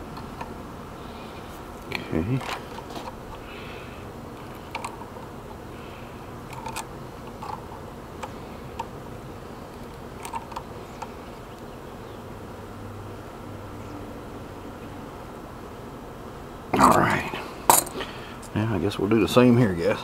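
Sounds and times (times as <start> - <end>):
faint background hum and hiss: 0.0 - 20.0.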